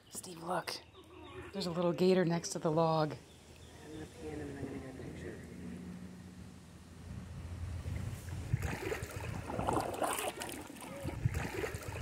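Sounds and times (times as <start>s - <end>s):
wind noise on microphone: 7.0s - 12.0s
paddle splashing water: 7.8s - 12.0s.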